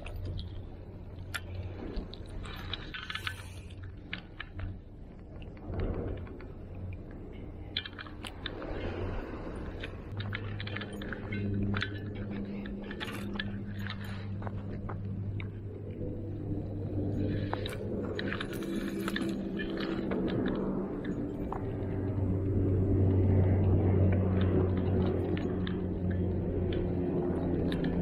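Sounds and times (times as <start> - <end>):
clicks and rustles of handling tackle: 0.0 - 15.6
low steady hum: 0.0 - 28.0.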